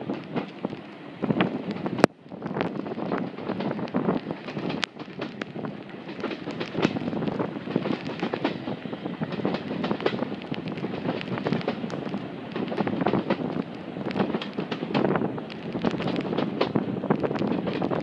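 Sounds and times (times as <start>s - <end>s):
dense irregular crackling: 0.0s - 18.0s
train running on track: 0.0s - 18.0s
wind buffeting microphone: 0.0s - 18.0s.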